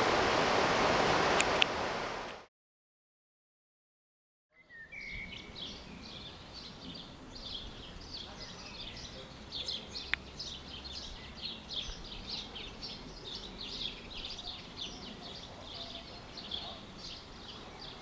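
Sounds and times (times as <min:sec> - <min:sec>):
birds chirping and singing: 0:04.6 - 0:18.0.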